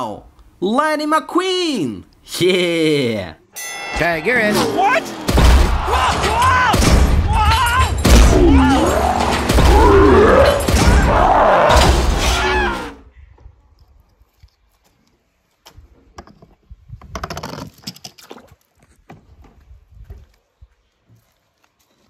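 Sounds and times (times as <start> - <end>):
cartoon soundtrack with voices: 1.2 - 13.0.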